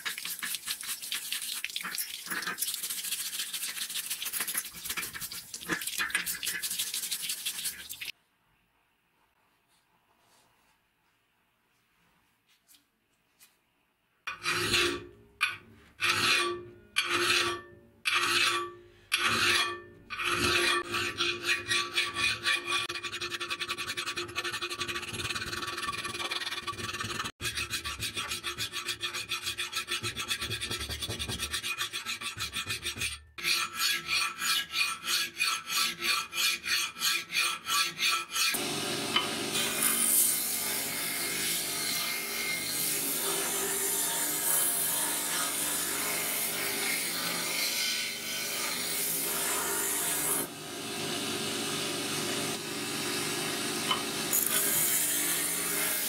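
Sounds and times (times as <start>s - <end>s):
file rasping on steel blade: 14.3s - 15.1s, 16.0s - 38.6s, 53.9s - 56.0s
belt grinder running: 38.6s - 43.8s, 50.2s - 56.0s.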